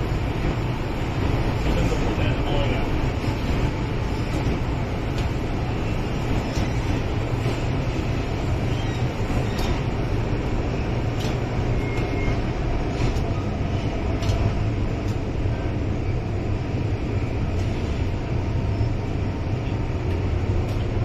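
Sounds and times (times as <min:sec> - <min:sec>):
train wheels rumbling on track: 0:00.0 - 0:21.0
light ticks from track: 0:20.0 - 0:21.0.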